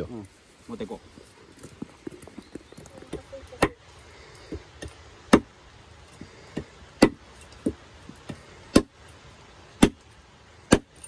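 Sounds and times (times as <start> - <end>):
blade striking wood: 5.3 - 5.5, 6.5 - 9.0, 9.8 - 10.1, 10.7 - 11.0.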